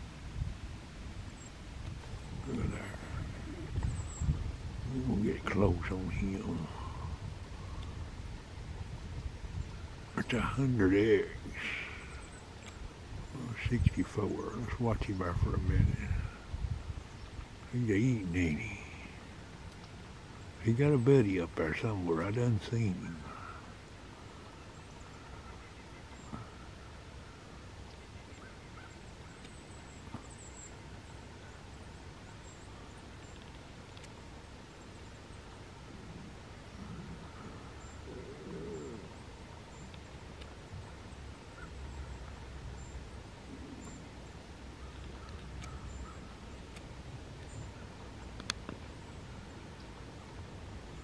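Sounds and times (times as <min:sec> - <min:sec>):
wind through woods: 0:00.0 - 0:51.0
faint bird chirps: 0:01.3 - 0:08.7, 0:09.5 - 0:46.8
light ticks: 0:07.8 - 0:08.0, 0:12.6 - 0:12.8, 0:19.6 - 0:20.2, 0:33.0 - 0:34.2, 0:39.8 - 0:40.6, 0:44.8 - 0:48.9.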